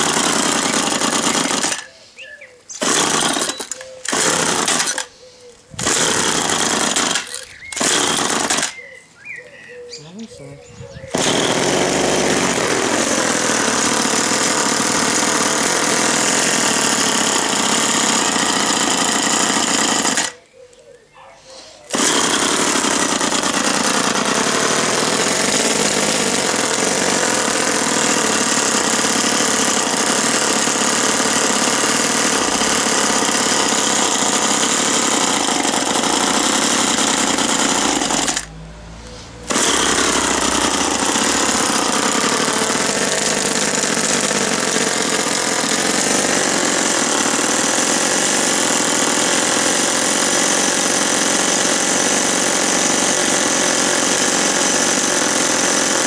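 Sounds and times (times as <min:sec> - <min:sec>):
small two-stroke engine running: 0:00.0 - 0:01.9, 0:05.8 - 0:08.8, 0:11.1 - 0:20.4, 0:21.9 - 0:38.5, 0:39.5 - 0:56.0
trimmer blades chattering: 0:05.8 - 0:08.9, 0:10.0 - 0:20.4, 0:21.9 - 0:38.5, 0:39.5 - 0:49.7.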